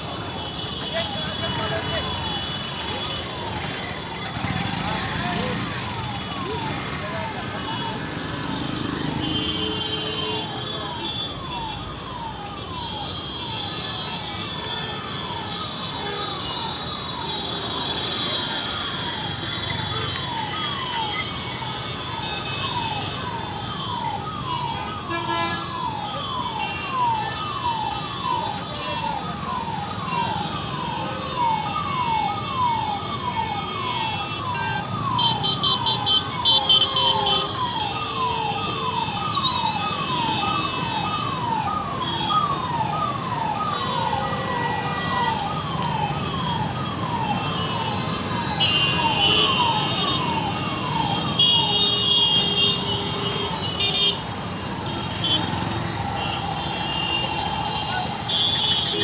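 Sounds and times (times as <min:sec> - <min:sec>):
city traffic rumble: 0:00.0 - 0:59.0
electronic siren sweeping: 0:25.7 - 0:52.7.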